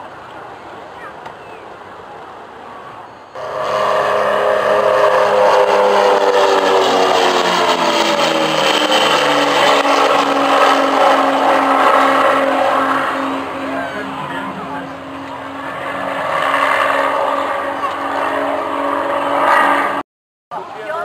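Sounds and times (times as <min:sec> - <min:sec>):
propeller aircraft flying past: 0:03.4 - 0:20.0.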